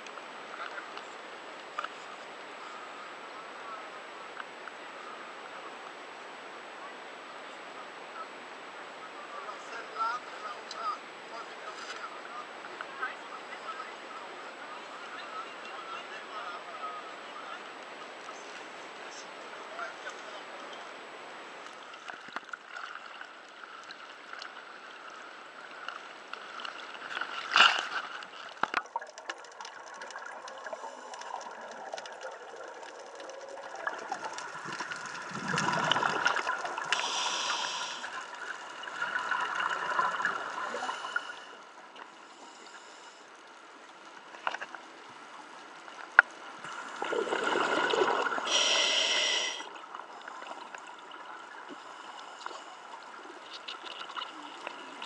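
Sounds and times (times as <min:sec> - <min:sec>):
gurgling exhaled bubbles: 0:28.5 - 0:41.6, 0:46.6 - 0:55.0
regulator inhalation hiss: 0:36.9 - 0:38.2, 0:48.5 - 0:49.7.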